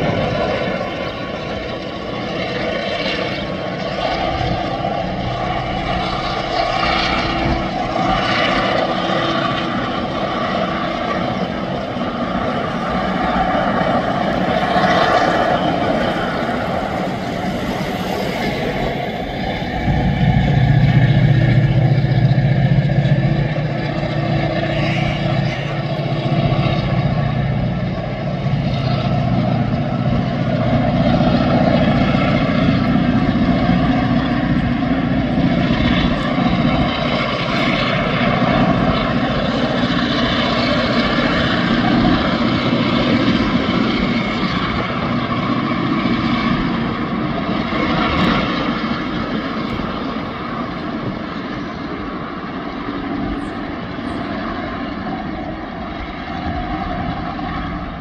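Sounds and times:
diesel locomotive engine drone: 0.0 - 58.0.

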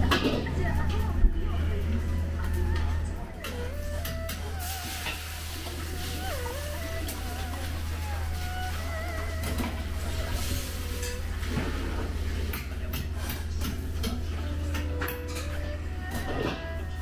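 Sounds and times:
dishes and utensils clinking: 12.9 - 16.7.

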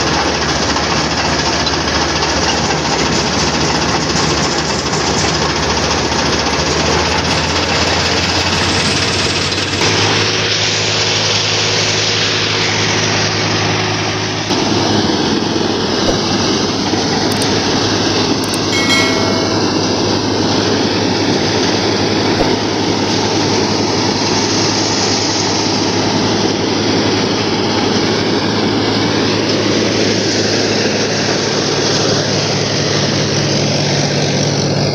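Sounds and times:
tractor engine under load: 0.0 - 25.4
blades chopping dry stalks: 14.5 - 17.8, 22.4 - 23.0.

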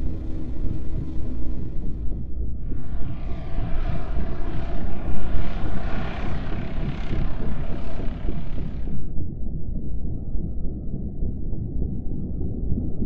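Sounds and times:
loud rushing roar: 0.0 - 9.1
deep continuous rumble: 0.0 - 13.0.

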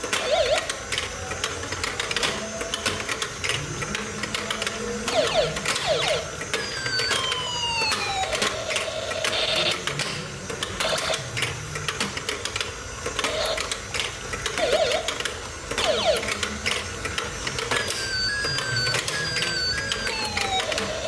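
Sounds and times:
short electronic toy chirps: 17.8 - 20.6.

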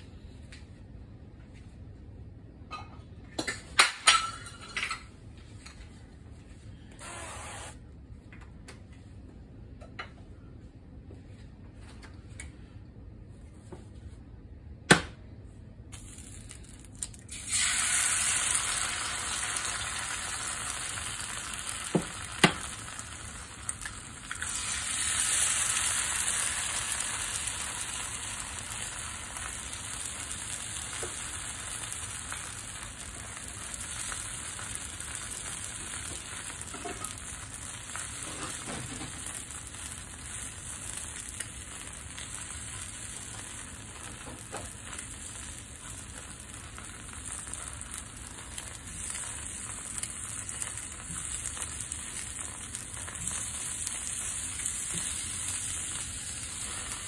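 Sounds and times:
eggs sizzling in hot oil: 16.0 - 57.0.

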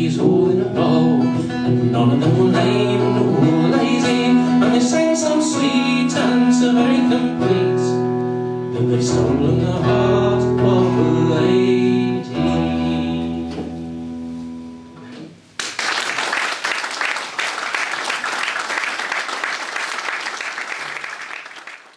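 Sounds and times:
acoustic guitar chords: 0.0 - 15.6
audience applauding: 15.6 - 21.9.

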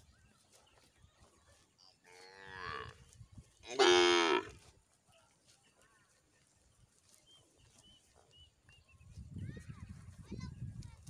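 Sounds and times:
cow mooing: 3.7 - 4.5.

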